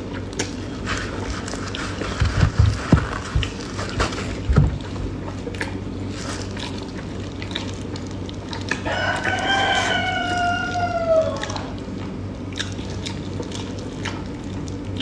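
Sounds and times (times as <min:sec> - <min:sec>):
rooster crowing: 0:08.8 - 0:11.8.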